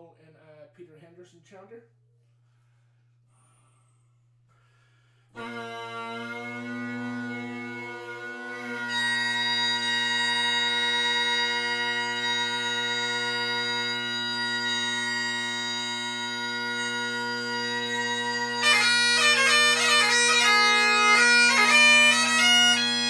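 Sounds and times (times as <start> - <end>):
bagpipe chanter high note: 5.4 - 23.0
bagpipe drones: 5.4 - 23.0.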